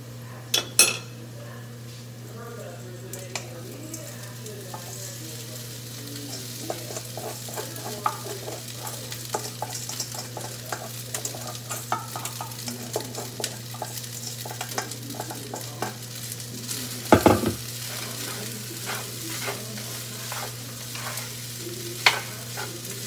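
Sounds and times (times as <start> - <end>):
garlic sizzling in oil: 1.8 - 23.0
spoon scraping and tapping bowl: 6.3 - 16.0, 18.2 - 21.3, 22.0 - 22.7.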